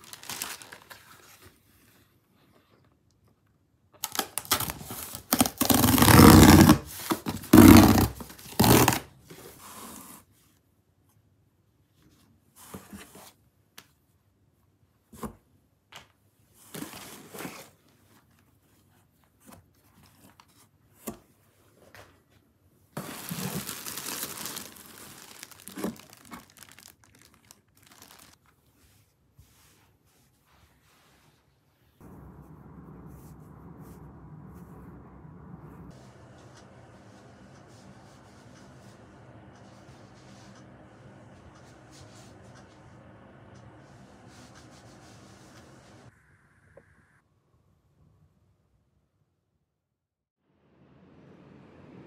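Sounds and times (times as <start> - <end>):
plastic wrapping crinkling: 0.0 - 1.6, 4.0 - 9.0, 23.0 - 28.5
cardboard tearing: 4.0 - 9.1, 23.0 - 28.4.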